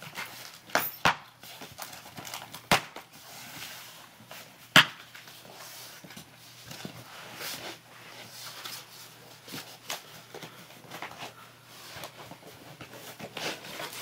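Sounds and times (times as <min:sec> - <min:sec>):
cardboard scraping and rustling: 0:03.1 - 0:14.0.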